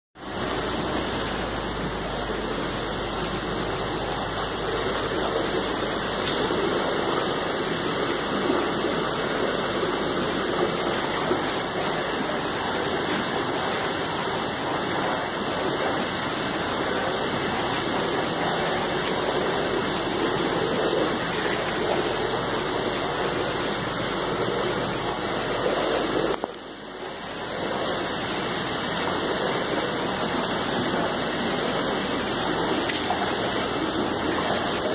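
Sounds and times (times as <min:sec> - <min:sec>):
running water splashing: 0:00.2 - 0:34.9.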